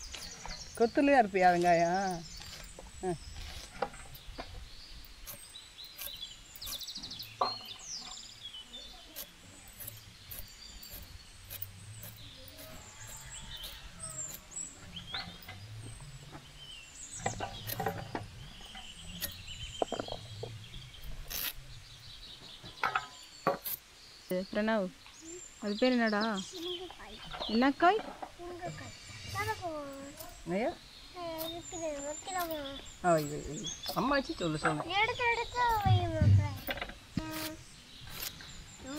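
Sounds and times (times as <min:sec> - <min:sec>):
birds chirping: 0:00.0 - 0:38.9
vegetables cut on curved blade: 0:09.1 - 0:14.6, 0:21.2 - 0:21.6, 0:36.5 - 0:38.9.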